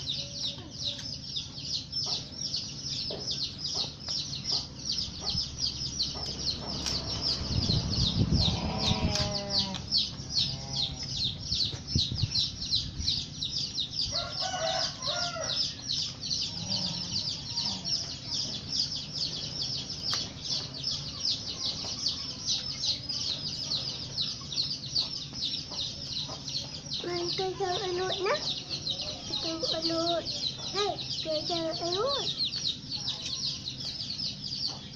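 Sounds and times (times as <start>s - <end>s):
chickens clucking: 0.0s - 34.9s.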